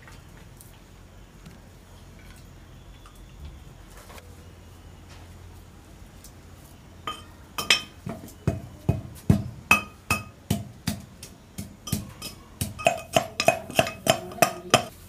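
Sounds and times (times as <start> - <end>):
pestle pounding in metal tumbler: 7.1 - 15.0.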